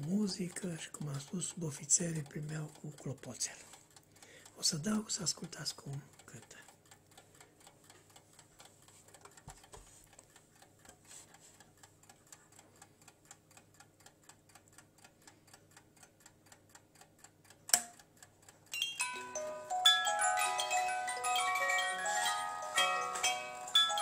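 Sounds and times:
clock ticking: 0.0 - 24.0
sharp click: 17.7 - 18.0
musical alarm melody: 18.8 - 24.0.

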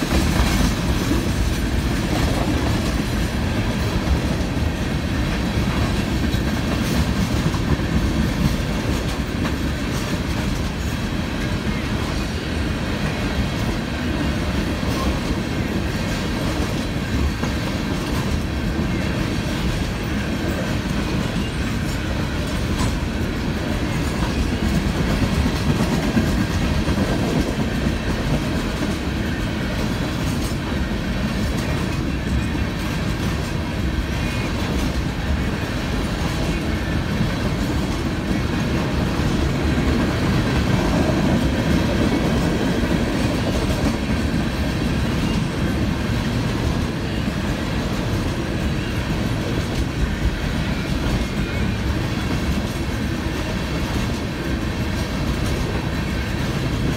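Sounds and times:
train wheels rumbling on rails: 0.0 - 56.9.

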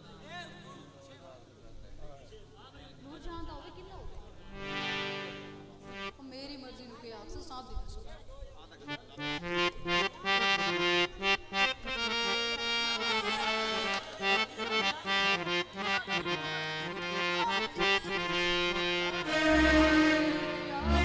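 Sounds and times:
reedy held-note melody: 9.0 - 21.0.

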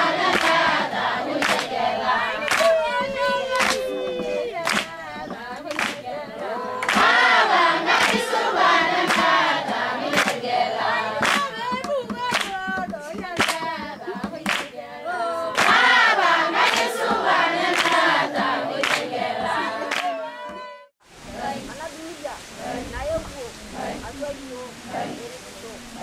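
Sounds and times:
group of people singing: 0.0 - 26.0
sharp hand claps: 0.2 - 1.8, 2.4 - 6.2, 6.8 - 8.4, 9.0 - 10.5, 11.2 - 14.8, 15.5 - 20.7.

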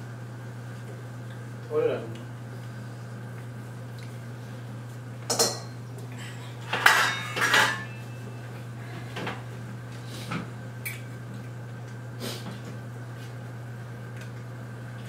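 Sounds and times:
metal cookware clattering: 5.3 - 5.7, 6.7 - 8.0.

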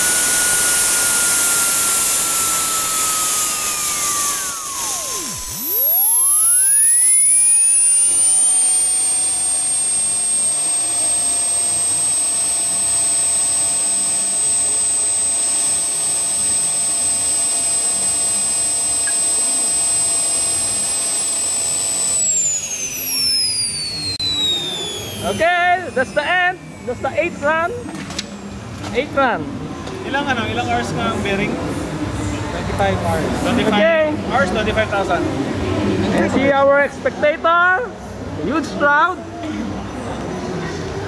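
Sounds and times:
jet turbine whine: 0.0 - 36.0.

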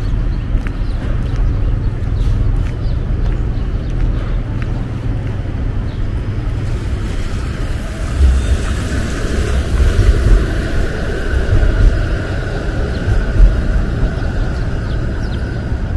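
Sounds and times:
low traffic rumble: 0.0 - 15.9
vehicle passing: 4.2 - 15.9.

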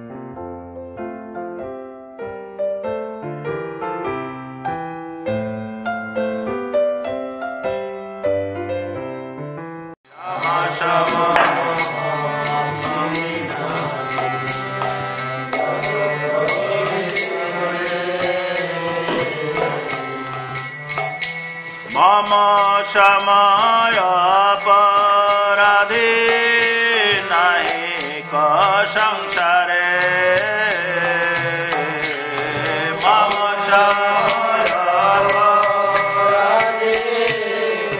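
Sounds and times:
chanting voices: 10.1 - 37.9
hand cymbals clinking: 10.1 - 37.9
person singing: 10.1 - 37.9.

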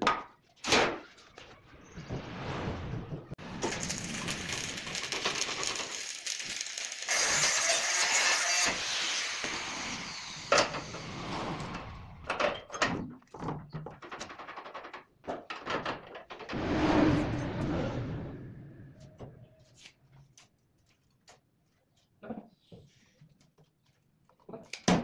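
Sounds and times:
arc welding crackling: 3.5 - 9.6
knocks and clatters: 11.6 - 16.6.

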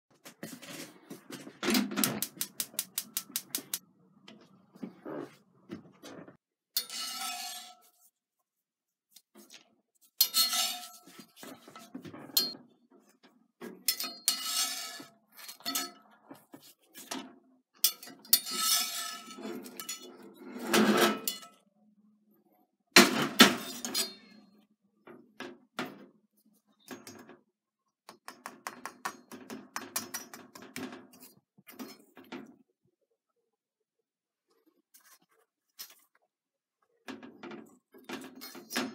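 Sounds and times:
skillet and spatula clattering: 28.2 - 32.5.

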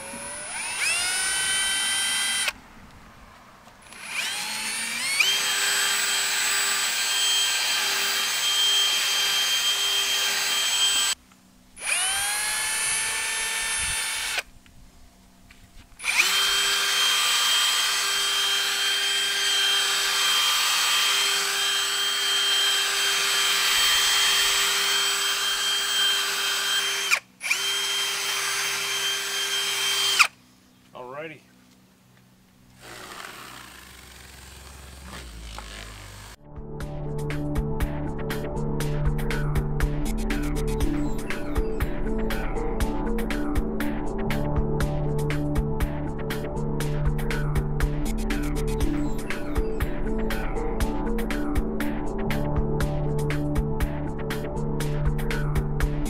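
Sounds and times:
drill motor whine: 0.0 - 2.6, 3.8 - 11.2, 11.8 - 14.5, 16.0 - 30.3.

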